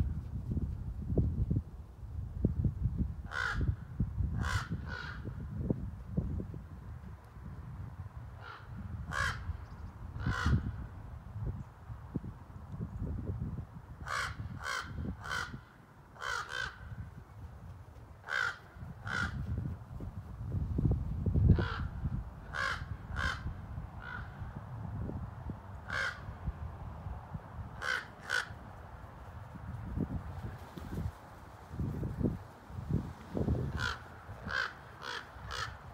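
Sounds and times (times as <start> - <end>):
crows cawing: 3.3 - 3.7, 4.4 - 5.3, 8.4 - 9.5, 10.2 - 10.7, 14.1 - 16.9, 18.2 - 19.4, 21.5 - 21.9, 22.5 - 24.4, 25.9 - 26.3, 27.8 - 28.6, 33.7 - 35.9.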